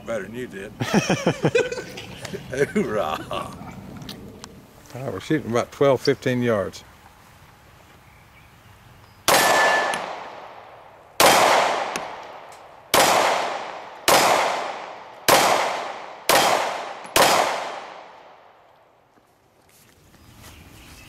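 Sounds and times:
pistol shots echoing: 9.3 - 18.6.

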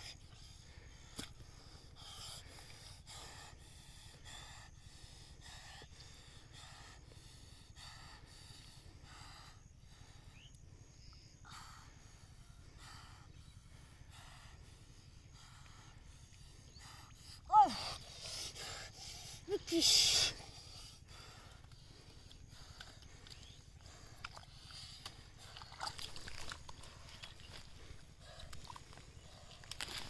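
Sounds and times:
hands squelching in wet mud: 21.3 - 30.0.

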